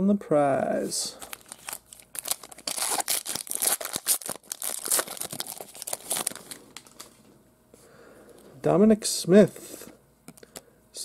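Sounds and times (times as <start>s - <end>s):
wrapper tearing and crinkling: 1.2s - 7.2s.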